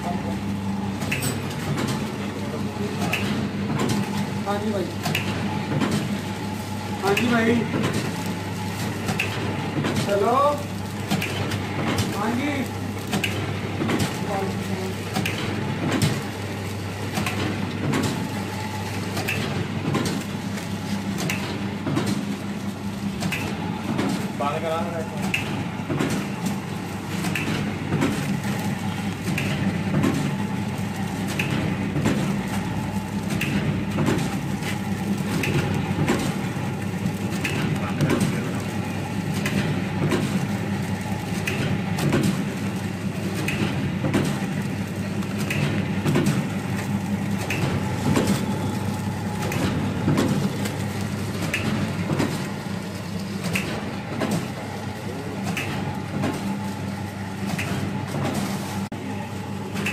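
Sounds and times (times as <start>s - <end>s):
packing machine hum: 0.0s - 59.9s
machine clacking: 31.1s - 52.6s.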